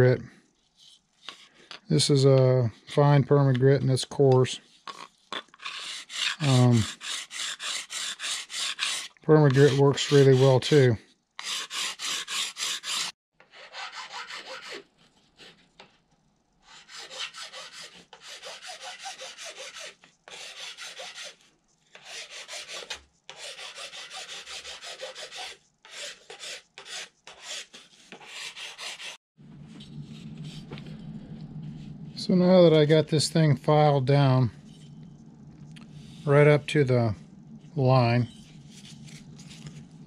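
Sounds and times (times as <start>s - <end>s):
file rasping on edge: 4.9s - 10.8s, 11.4s - 14.8s, 16.7s - 29.2s.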